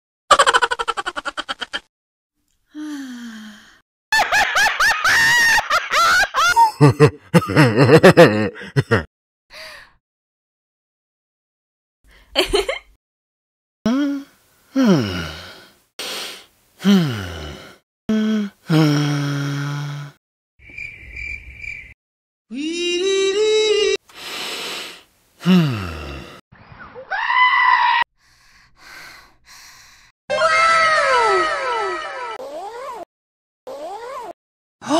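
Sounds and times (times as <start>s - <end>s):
deep hearty laugh: 0.3s - 1.8s, 4.2s - 9.1s, 12.4s - 12.8s
high-pitched rapid giggle: 0.3s - 1.9s.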